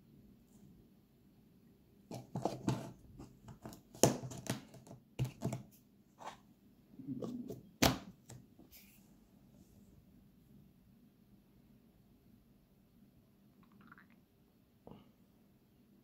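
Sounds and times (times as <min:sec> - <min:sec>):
turtle claws scraping plastic: 0:02.1 - 0:05.6.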